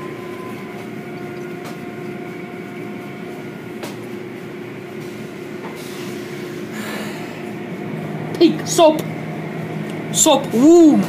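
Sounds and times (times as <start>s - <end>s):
car wash machinery humming: 0.0s - 11.0s.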